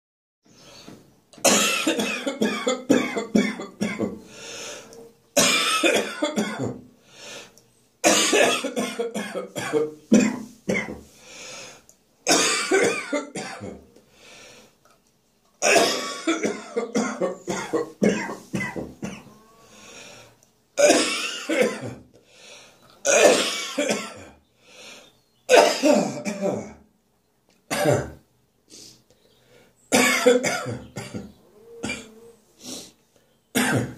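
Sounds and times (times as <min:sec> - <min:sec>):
person coughing and choking: 0:01.4 - 0:04.2, 0:05.4 - 0:06.8, 0:08.0 - 0:11.0, 0:12.3 - 0:13.8, 0:15.6 - 0:19.3, 0:20.8 - 0:22.1, 0:23.1 - 0:24.4, 0:25.5 - 0:26.8, 0:27.7 - 0:28.2, 0:29.9 - 0:32.1, 0:33.6 - 0:33.9.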